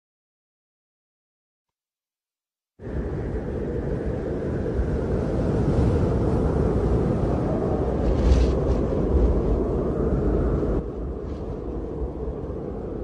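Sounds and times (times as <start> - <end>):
low rumbling noise: 2.8 - 13.0.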